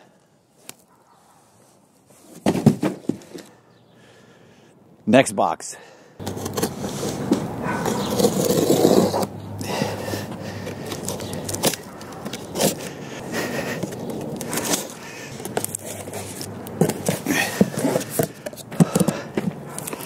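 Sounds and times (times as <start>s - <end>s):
cardboard box scraping: 6.2s - 9.3s, 15.6s - 20.0s.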